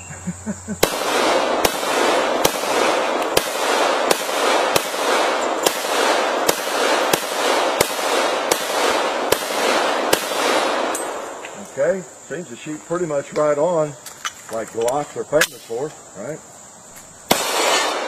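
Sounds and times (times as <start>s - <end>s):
pistol shots echoing: 0.8s - 11.6s, 17.3s - 18.0s.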